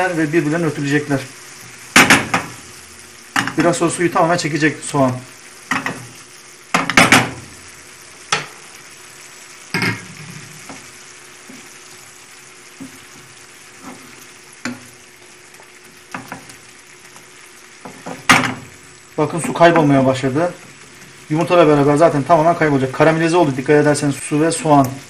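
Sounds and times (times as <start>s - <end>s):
onions sizzling in a frying pan: 0.0s - 25.0s
wooden spoon scraping a pan: 12.7s - 16.6s, 17.8s - 18.6s.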